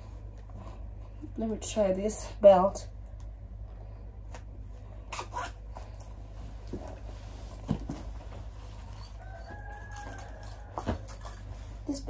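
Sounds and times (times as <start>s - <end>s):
steady low hum: 0.0s - 12.0s
belt scraping and rustling: 5.1s - 12.0s.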